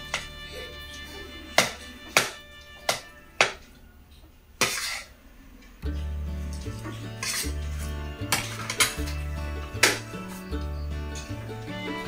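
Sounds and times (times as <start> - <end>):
background music with bass line: 5.8 - 12.0
cutlery clinking on plate: 7.2 - 7.6, 8.3 - 9.2.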